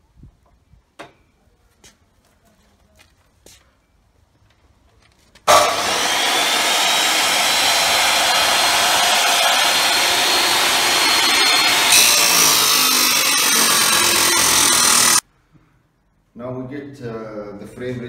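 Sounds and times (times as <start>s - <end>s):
chop saw running: 5.5s - 15.2s
saw disc cutting steel tube: 5.5s - 15.2s.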